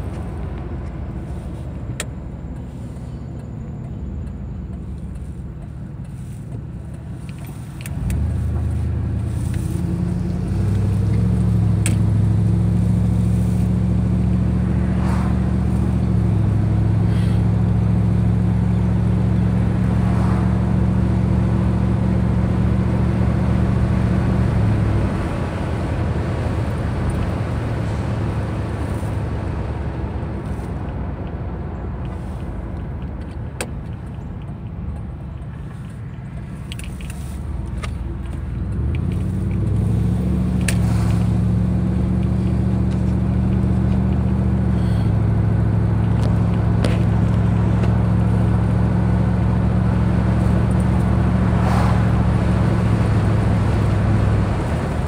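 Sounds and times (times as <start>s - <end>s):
car engine: 0.0s - 55.0s.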